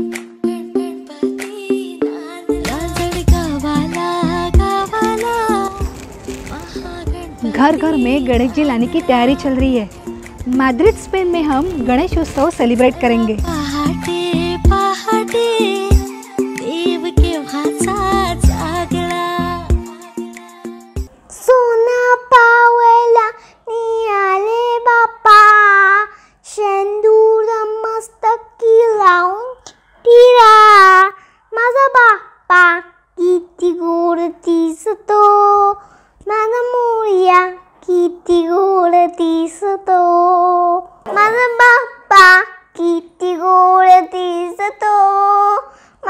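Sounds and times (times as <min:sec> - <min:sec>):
girl singing long held notes: 0:00.0 - 0:31.7.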